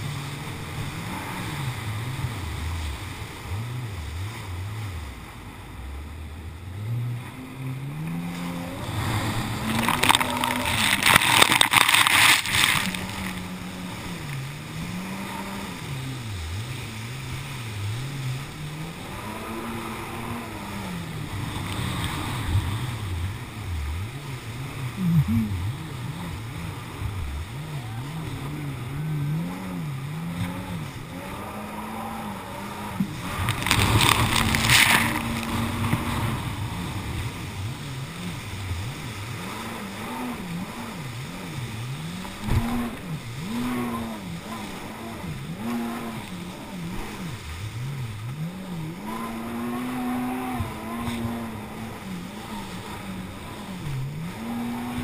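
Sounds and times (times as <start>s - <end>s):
jet ski engine revving: 0.0s - 55.0s.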